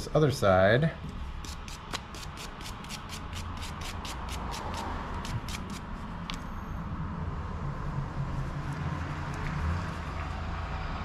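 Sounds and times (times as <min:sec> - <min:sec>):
brush scratching on pipe threads: 0:01.4 - 0:06.1.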